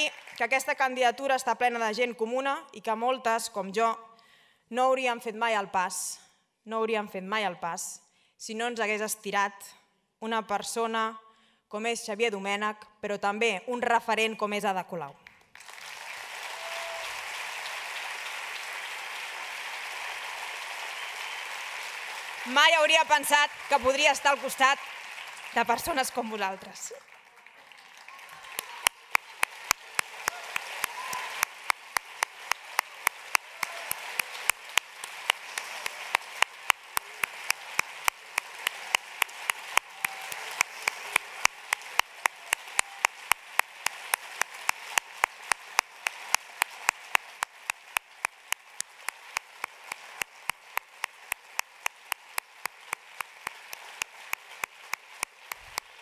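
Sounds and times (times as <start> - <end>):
audience applauding: 0.0 - 0.7, 15.2 - 56.0.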